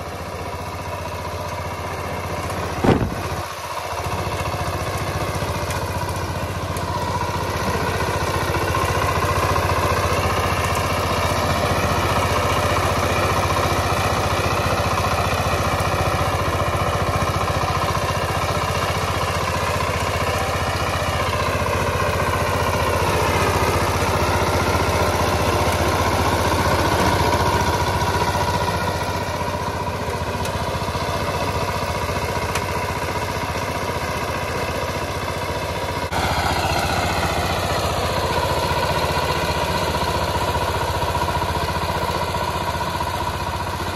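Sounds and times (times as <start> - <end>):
diesel engine running under load: 0.0 - 43.9
rotary tiller working soil: 0.0 - 43.9.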